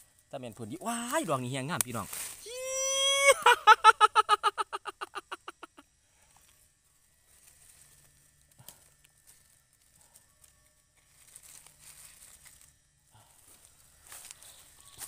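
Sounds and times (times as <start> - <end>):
rustles in dry leaves: 0.0 - 2.8, 6.1 - 15.0
man giggling high-pitched: 2.5 - 5.8.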